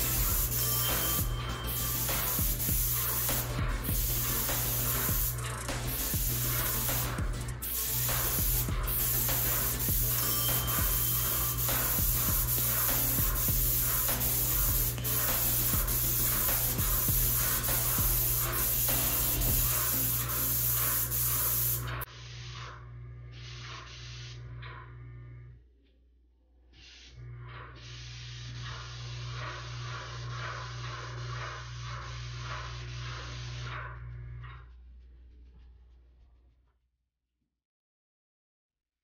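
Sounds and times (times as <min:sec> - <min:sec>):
paint spray gun hissing: 0:00.0 - 0:22.4, 0:27.8 - 0:33.6.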